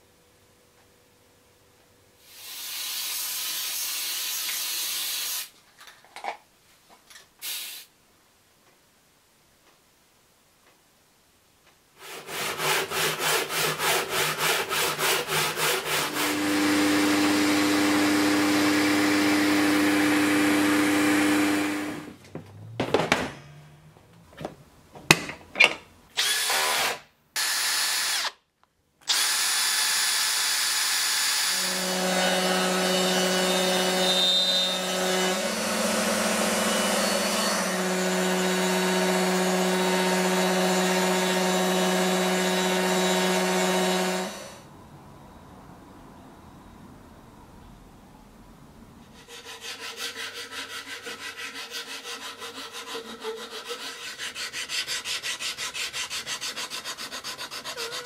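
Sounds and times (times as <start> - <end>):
drill cutting wood: 2.3 - 5.5, 12.3 - 22.2, 26.2 - 28.4, 29.0 - 44.6
handsaw cutting wood: 12.0 - 22.2, 29.1 - 44.6, 49.1 - 58.0
power tool running: 14.4 - 22.2, 26.2 - 28.4, 29.0 - 44.6.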